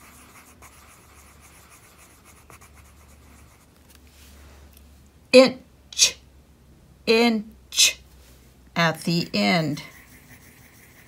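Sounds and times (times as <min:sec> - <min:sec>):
marker scratching on paper: 0:00.0 - 0:03.7, 0:09.4 - 0:11.0.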